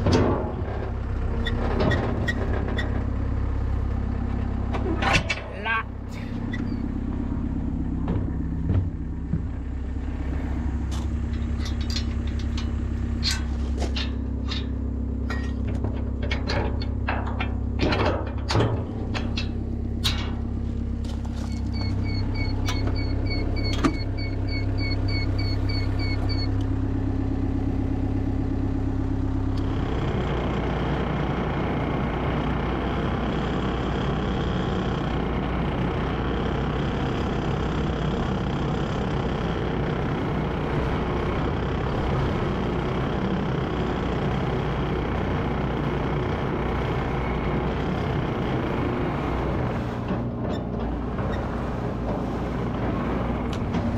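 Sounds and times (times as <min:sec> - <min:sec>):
metal clanks and knocks: 0:00.0 - 0:00.9, 0:10.8 - 0:23.0, 0:49.8 - 0:53.9
diesel engine idling: 0:00.0 - 0:53.9
tracked loader driving over gravel: 0:00.0 - 0:53.9.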